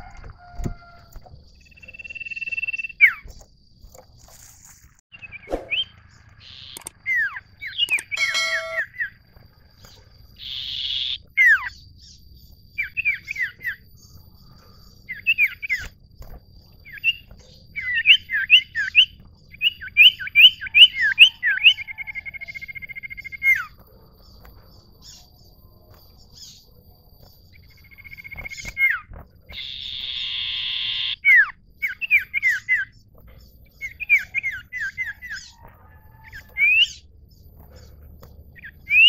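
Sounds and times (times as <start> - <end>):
down-slurred whistled bird notes: 1.6 - 3.5, 5.1 - 39.0
harsh rasping bird note: 8.1 - 9.1.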